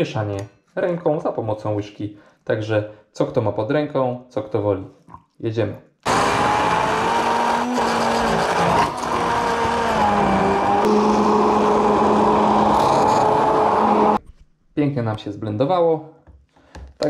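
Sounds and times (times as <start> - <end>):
immersion blender motor whine: 6.1 - 14.2.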